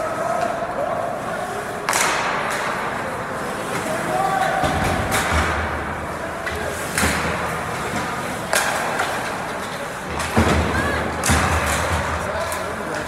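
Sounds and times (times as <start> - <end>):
faint crowd chatter: 0.0 - 13.0
hockey equipment knocks: 10.1 - 12.3.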